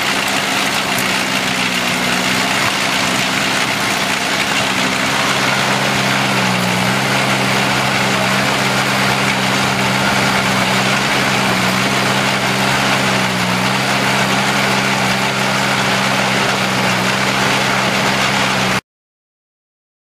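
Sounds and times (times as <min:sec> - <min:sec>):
fruit harvester machinery humming: 0:00.0 - 0:18.8.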